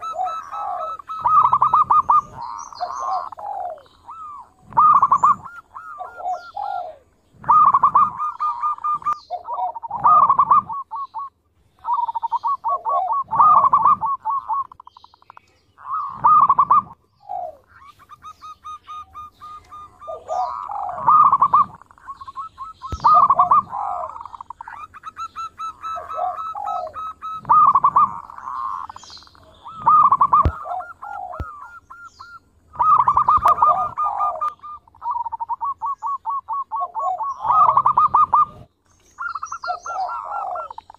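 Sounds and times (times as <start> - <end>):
dove cooing: 0.0 - 15.0, 15.8 - 40.9.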